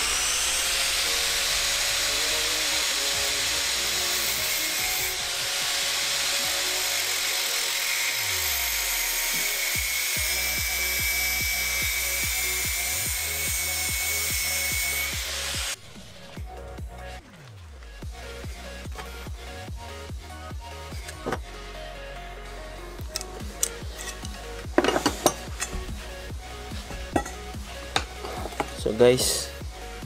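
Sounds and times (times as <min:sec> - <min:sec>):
angle grinder cutting steel: 0:00.0 - 0:16.3, 0:23.0 - 0:28.9
electronic music: 0:08.2 - 0:30.0.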